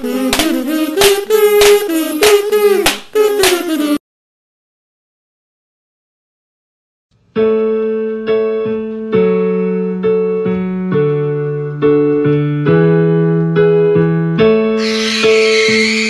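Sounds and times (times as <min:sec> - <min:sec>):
piano melody: 0:07.3 - 0:16.0
harsh high-pitched noise: 0:14.8 - 0:16.0.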